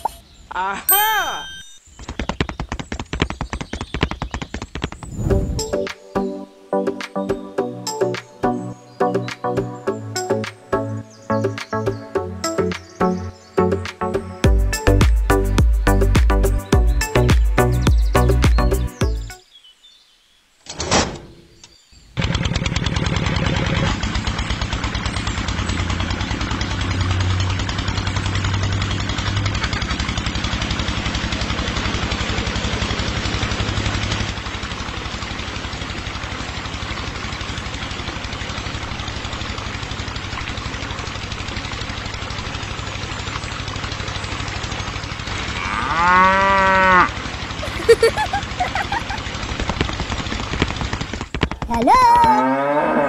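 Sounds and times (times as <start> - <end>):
cow mooing: 45.5 - 47.2, 52.3 - 53.0.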